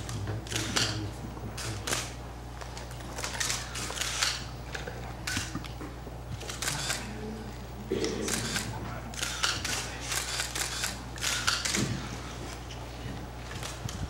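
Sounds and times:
camera shutters clicking: 0.0 - 1.0, 1.6 - 5.8, 6.4 - 7.1, 8.0 - 11.9, 13.5 - 14.0.

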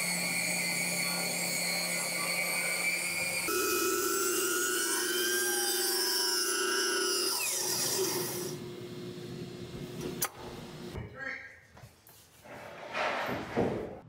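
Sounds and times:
saw blade spinning down: 0.0 - 8.5
circular saw whining: 0.0 - 8.8.

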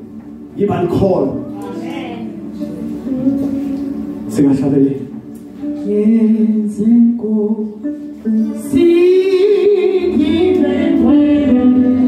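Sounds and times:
electronic keyboard chords: 0.0 - 12.0
person singing: 1.5 - 4.3, 5.6 - 12.0.

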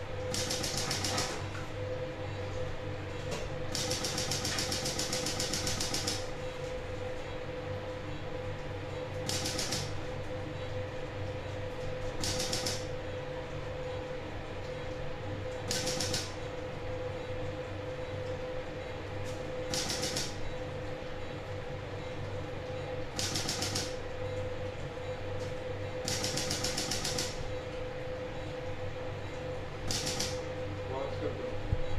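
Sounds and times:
steady equipment hum: 0.0 - 31.9
lithotripter rapid clicking: 0.3 - 1.4, 3.7 - 6.3, 9.3 - 10.0, 12.2 - 12.9, 15.7 - 16.4, 19.7 - 20.4, 23.2 - 24.0, 26.0 - 27.4, 29.9 - 30.4.

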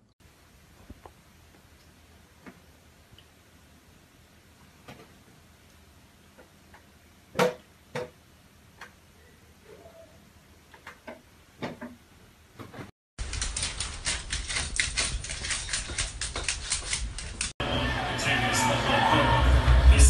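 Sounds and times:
rapid clicks and taps: 13.2 - 17.6.

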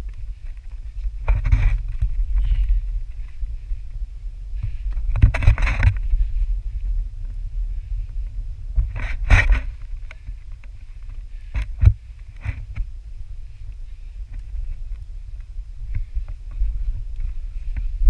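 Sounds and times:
wind rumble on microphone: 0.0 - 18.0
camera scrapes and knocks: 1.2 - 2.7, 4.6 - 6.2, 8.8 - 10.3, 11.5 - 12.9.

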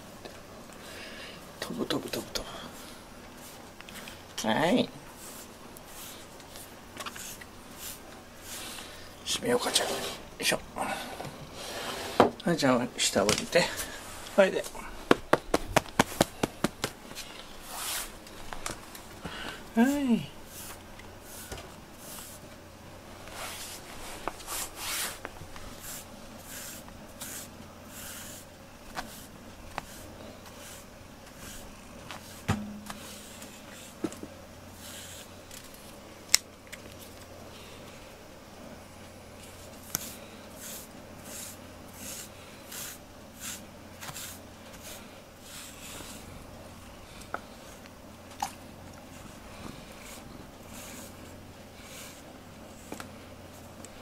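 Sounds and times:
brush swishing through fur: 5.1 - 9.0, 13.8 - 18.6, 19.7 - 34.1, 34.7 - 35.9, 39.4 - 46.4, 49.0 - 52.9.

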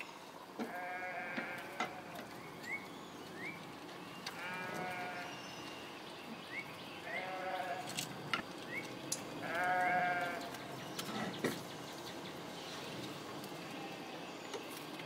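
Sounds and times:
high chirps and light clicks: 2.2 - 13.8.

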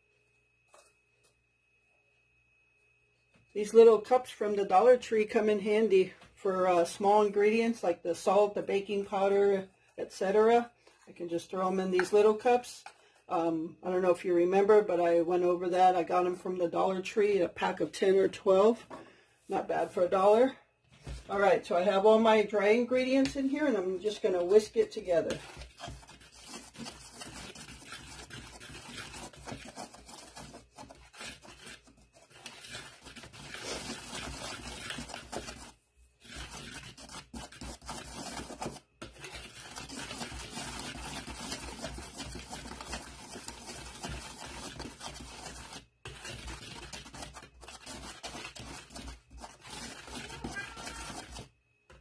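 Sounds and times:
whisk scraping plastic bowl: 11.4 - 12.9, 21.9 - 52.0.

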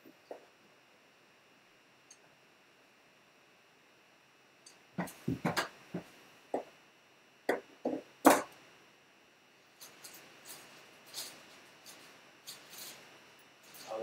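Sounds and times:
knocks of hard objects: 5.0 - 6.7, 7.5 - 8.6.

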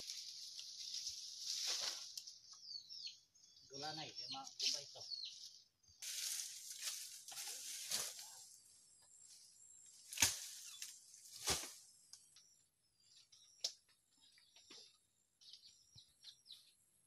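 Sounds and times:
bamboo and thatch rustling: 0.0 - 2.7, 4.4 - 12.2.

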